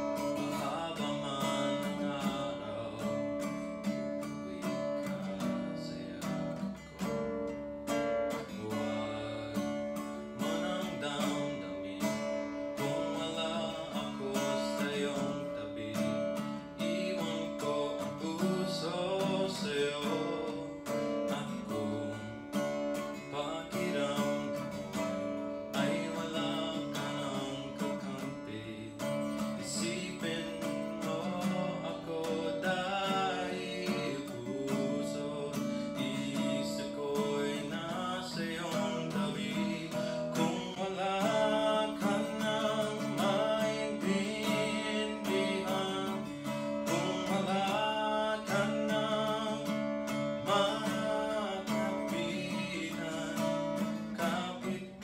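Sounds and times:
acoustic guitar strumming chords: 0.0s - 55.0s.

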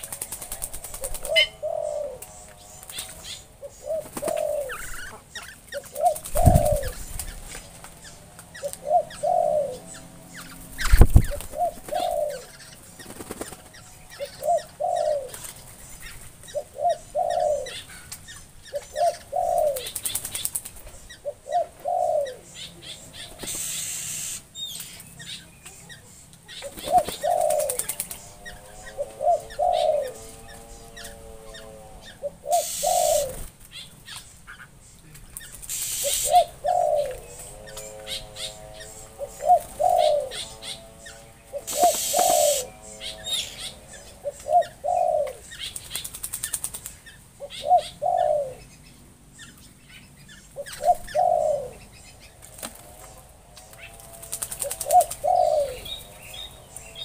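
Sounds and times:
birds splashing and flapping wings: 0.0s - 1.6s, 13.0s - 13.8s, 19.8s - 20.9s, 23.3s - 25.0s, 26.7s - 28.3s, 32.6s - 33.8s, 35.2s - 36.3s, 41.6s - 42.6s, 45.6s - 47.2s, 52.4s - 55.3s
low two-part bird call: 41.5s - 45.4s.

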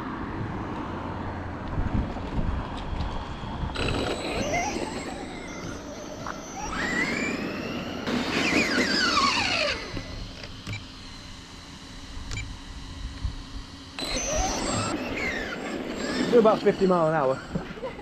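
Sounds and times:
electric motor whining: 0.3s - 18.0s.

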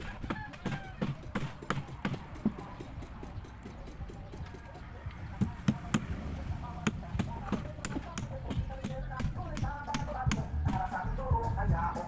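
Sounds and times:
hammer blows on wood: 6.8s - 11.8s.

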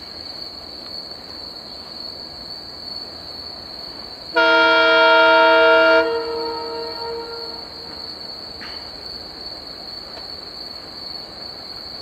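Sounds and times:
insects trilling: 0.0s - 12.0s
diesel locomotive air horn: 4.3s - 8.0s.

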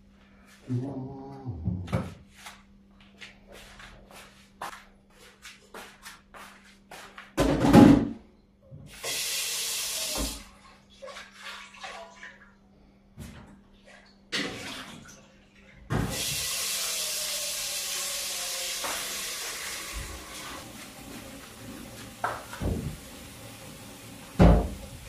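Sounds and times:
knocks and clatters at sink: 7.4s - 8.2s, 22.1s - 23.1s, 24.3s - 25.0s
tap running into metal sink: 18.7s - 20.7s, 21.4s - 25.0s.

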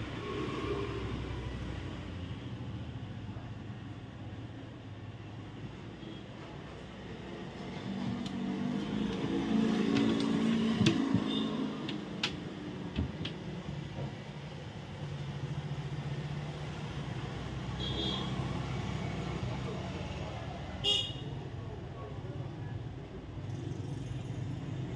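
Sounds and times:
passing traffic hum: 0.0s - 24.9s
sharp clicks: 11.8s - 12.5s.

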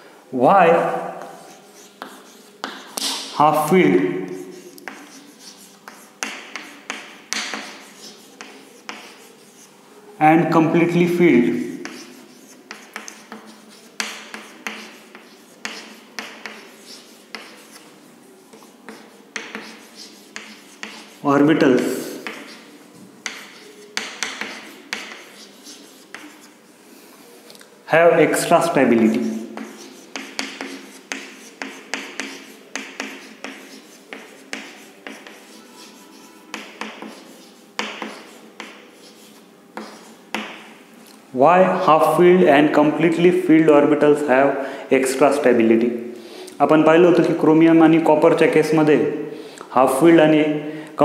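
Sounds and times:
chalk tapping on chalkboard: 0.8s - 9.7s, 11.4s - 26.6s, 28.3s - 40.8s
chalk scratching: 0.8s - 9.8s, 10.7s - 26.7s, 28.2s - 40.8s, 41.6s - 42.3s.

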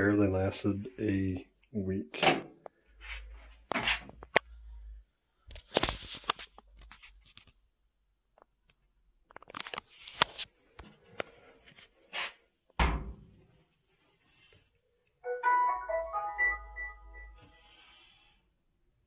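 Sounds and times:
handling clicks knocks and scrapes: 9.3s - 11.8s
thin hiss: 17.4s - 18.5s.

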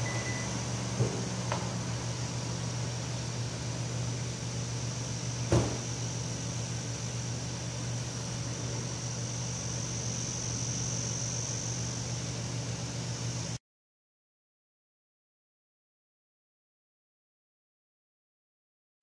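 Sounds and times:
car engine idling: 0.0s - 5.0s.

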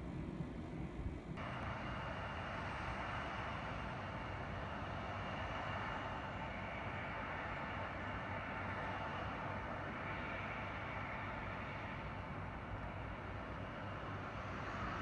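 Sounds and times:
distant jet engines rushing: 0.0s - 15.0s.

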